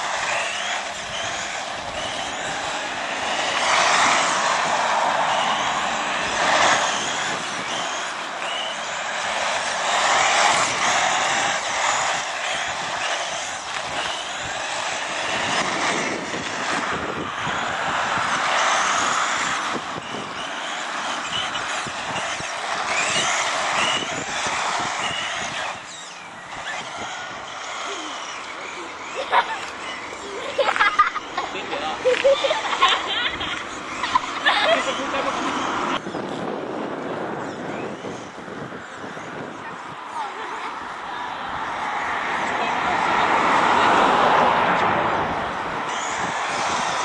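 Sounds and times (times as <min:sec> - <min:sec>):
tyre hiss on asphalt: 0:00.0 - 0:25.8
electric toy car motor whine: 0:00.0 - 0:47.0.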